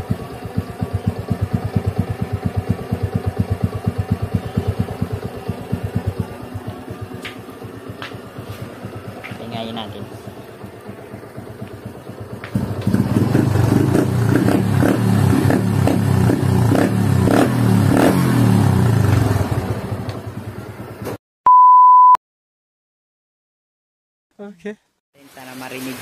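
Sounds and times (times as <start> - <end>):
motorcycle engine revving: 0.0 - 21.2
short electronic beep: 21.5 - 22.2.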